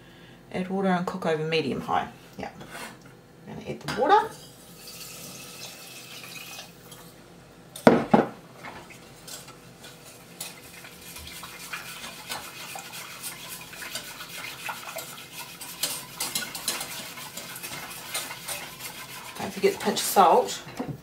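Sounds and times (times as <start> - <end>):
whisk scraping metal saucepan: 9.3 - 20.6.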